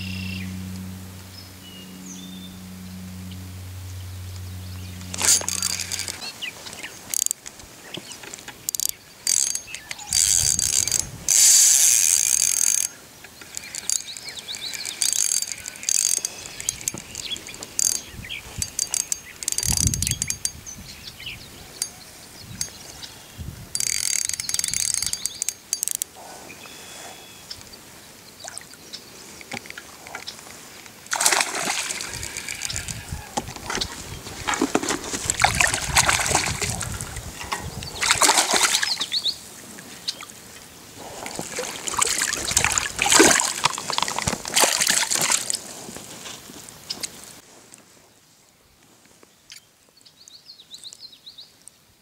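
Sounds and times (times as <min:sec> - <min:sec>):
fishing reel clicking and whirring: 0:02.6 - 0:06.3, 0:07.1 - 0:07.4, 0:08.6 - 0:20.6, 0:23.7 - 0:26.1, 0:31.2 - 0:33.8.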